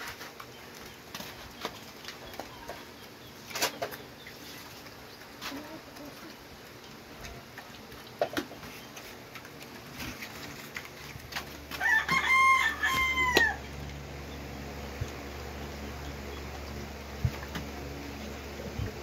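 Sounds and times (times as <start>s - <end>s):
rooster crowing: 11.7s - 13.7s.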